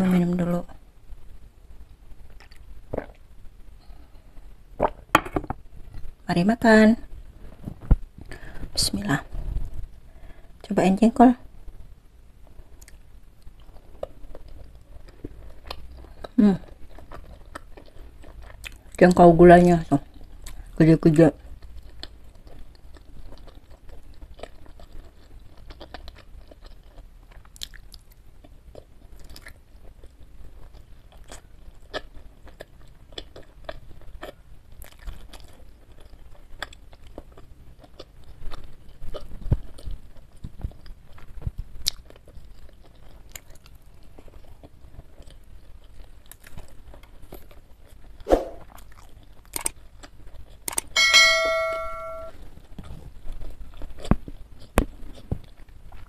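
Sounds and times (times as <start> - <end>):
close chewing mouth sounds: 12.5 - 19.3, 20.0 - 51.0, 52.6 - 56.0
bright bell chime: 51.0 - 52.3.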